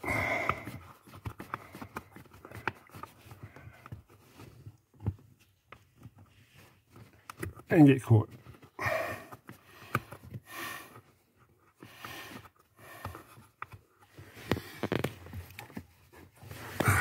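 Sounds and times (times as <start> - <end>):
heavy breathing: 0.0 - 4.0, 8.7 - 15.1, 16.4 - 17.0.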